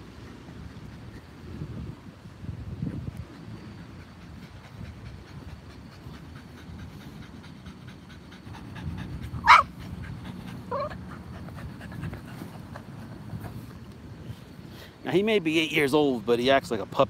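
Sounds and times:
dog panting: 0:02.8 - 0:13.8
dog whining: 0:09.4 - 0:09.7, 0:10.7 - 0:11.0.

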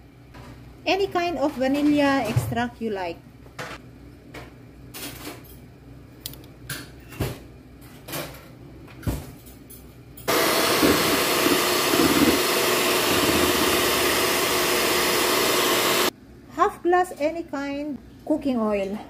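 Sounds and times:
electric hand mixer whisking: 0:10.3 - 0:16.1.

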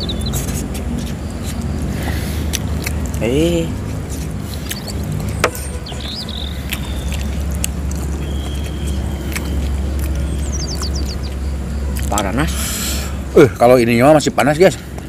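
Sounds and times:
bird chirps: 0:00.0 - 0:01.6, 0:04.4 - 0:12.0
people chewing: 0:00.0 - 0:15.0.

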